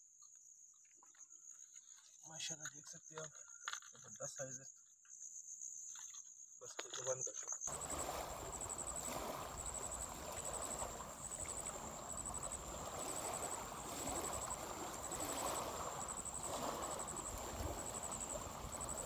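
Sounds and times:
cricket trilling: 0:00.4 - 0:19.0
small waves lapping on stones: 0:07.7 - 0:19.0.

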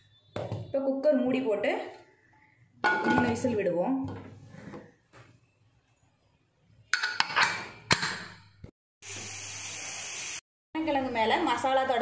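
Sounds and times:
pressure cooker hissing: 0:09.0 - 0:10.4.

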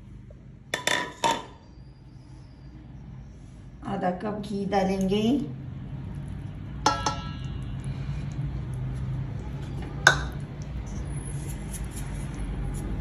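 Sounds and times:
low steady hum: 0:00.0 - 0:13.0
utensil clinking metal bowl: 0:06.8 - 0:08.0.

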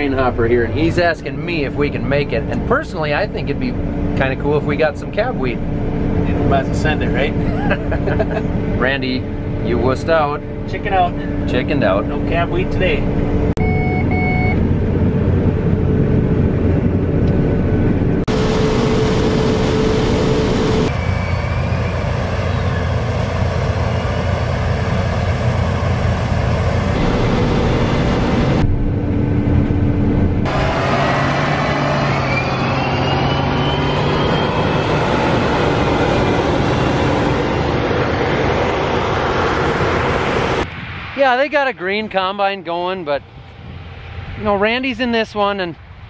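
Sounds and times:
combine harvester engine: 0:00.0 - 0:40.7
whining tone: 0:03.4 - 0:41.9.

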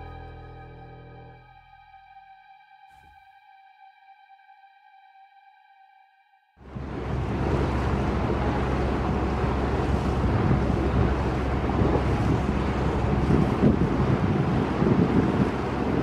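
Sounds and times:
boat engine humming: 0:00.0 - 0:01.9, 0:06.6 - 0:16.0
wind noise on microphone: 0:06.7 - 0:16.0.

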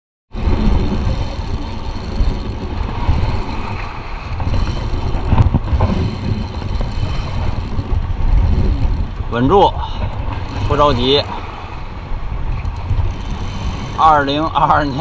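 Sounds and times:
wind buffeting microphone: 0:00.3 - 0:15.0.

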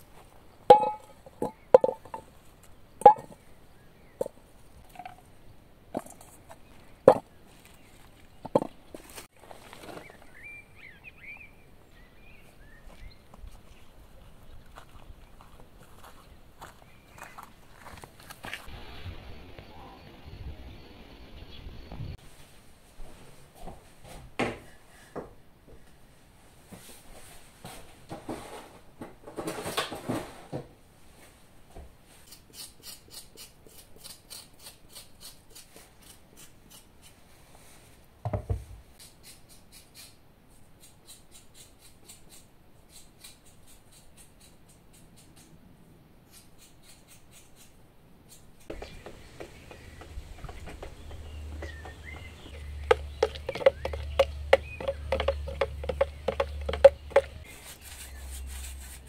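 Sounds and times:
stick knocking plastic bucket: 0:48.7 - 0:57.5.

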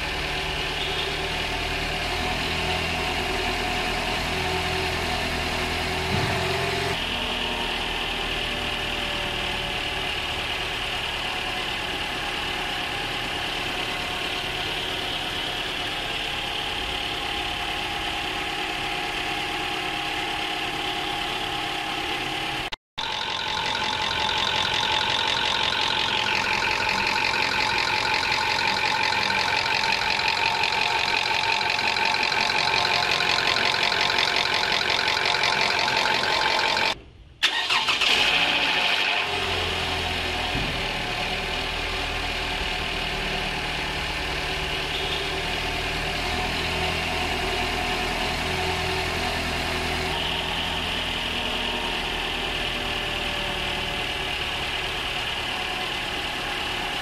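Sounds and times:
car engine idling: 0:00.0 - 0:57.0
fast engine ticking: 0:08.2 - 0:38.2.

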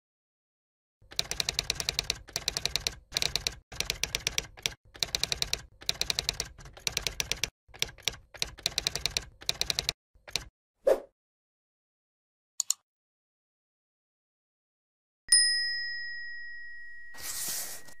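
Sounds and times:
typewriter keys clacking: 0:01.1 - 0:10.5.

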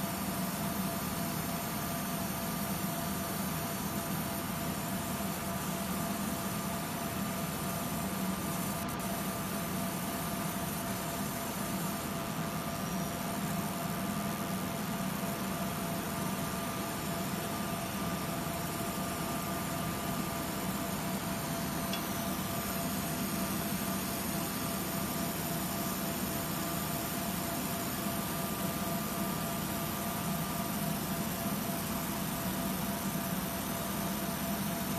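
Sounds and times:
laser machine whirring hiss: 0:00.0 - 0:34.9.

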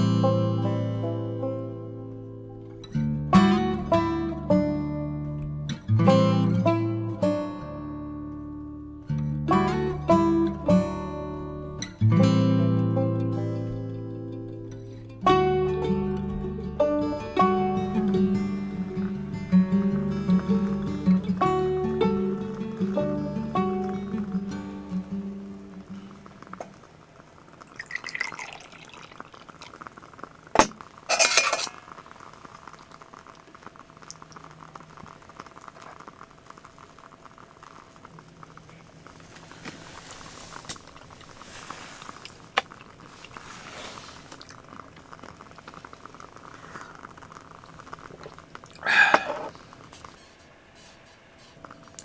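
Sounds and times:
dishes clattering: 0:30.6 - 0:31.8
pots and dishes clinking: 0:30.6 - 0:31.9.

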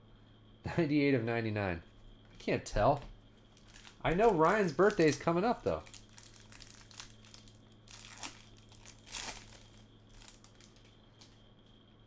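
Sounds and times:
plastic wrapper crinkling: 0:03.5 - 0:11.4.

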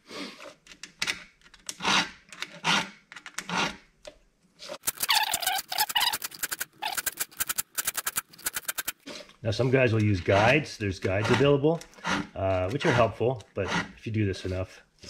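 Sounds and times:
file rasping on chain tooth: 0:01.7 - 0:03.8, 0:10.2 - 0:14.7.

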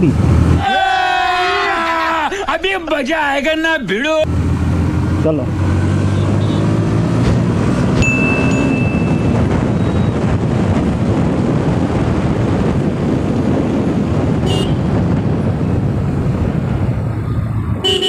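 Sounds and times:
wind and road noise: 0:00.0 - 0:18.0
motorcycle engine drone: 0:04.2 - 0:18.0
horn toot: 0:14.4 - 0:14.9.

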